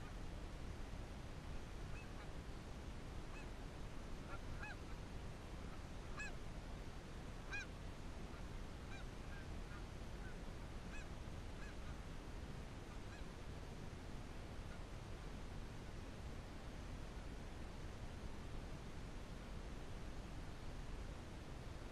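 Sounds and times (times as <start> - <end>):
low wind rumble: 0.0 - 21.9
geese honking: 6.1 - 6.4, 7.5 - 7.7.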